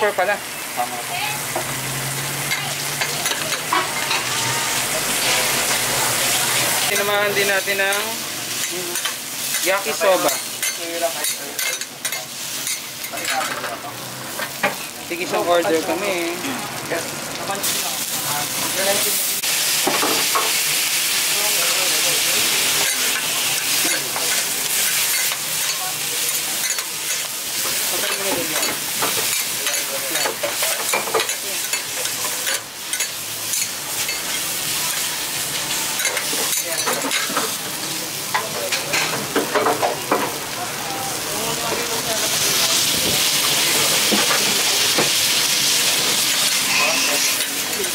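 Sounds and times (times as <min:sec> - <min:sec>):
noodles sizzling on griddle: 0:00.0 - 0:47.9
metal spatulas scraping griddle: 0:45.9 - 0:47.9.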